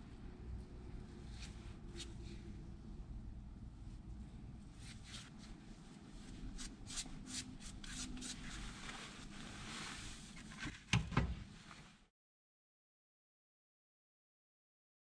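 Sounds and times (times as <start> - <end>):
soft rustle: 1.1 - 2.7, 3.8 - 10.8, 11.5 - 12.1.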